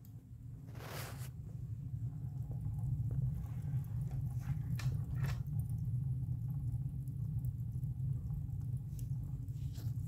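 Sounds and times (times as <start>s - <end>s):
coals crackling: 0.0s - 10.0s
stove burning rumble: 0.0s - 10.0s.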